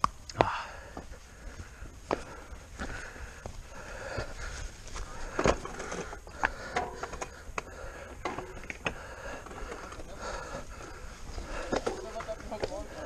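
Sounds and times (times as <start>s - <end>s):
bike knocking and rattling on stones: 4.1s - 13.0s.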